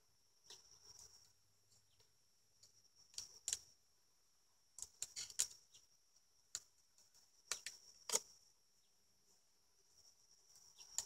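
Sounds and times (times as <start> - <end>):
hive tool clicking on wood: 7.4 - 8.3.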